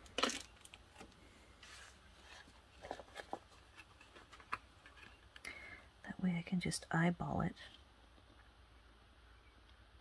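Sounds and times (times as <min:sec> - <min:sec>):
paper rustling: 0:00.2 - 0:05.2.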